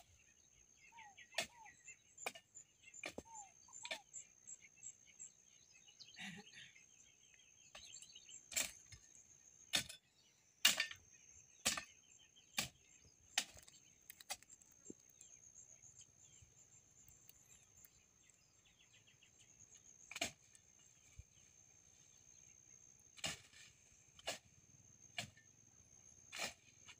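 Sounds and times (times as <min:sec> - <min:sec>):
faint chirping: 0:00.0 - 0:26.1
hand tool chopping soil: 0:09.7 - 0:10.0, 0:10.6 - 0:11.0, 0:11.6 - 0:11.9, 0:12.6 - 0:12.8, 0:13.4 - 0:14.6, 0:20.1 - 0:20.6, 0:23.2 - 0:24.5, 0:26.3 - 0:26.9.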